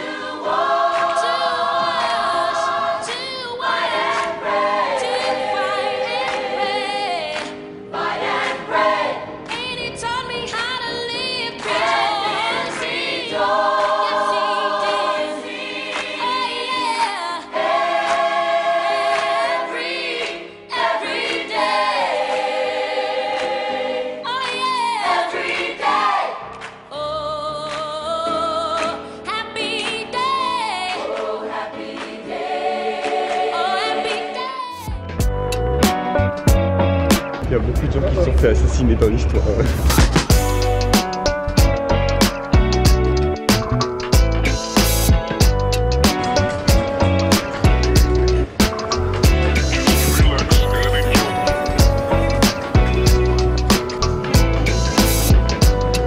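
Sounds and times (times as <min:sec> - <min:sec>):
choir singing: 0:00.0 - 0:27.4, 0:29.6 - 0:35.0, 0:48.4 - 0:54.0.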